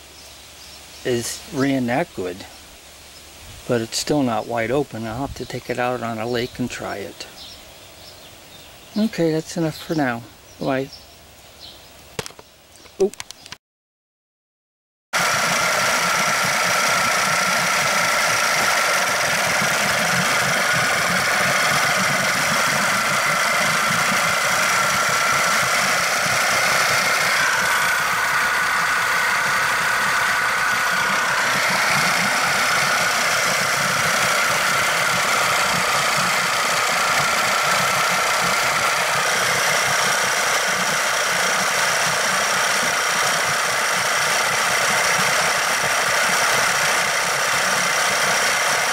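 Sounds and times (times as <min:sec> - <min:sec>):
outboard motor running: 0:15.2 - 0:48.9.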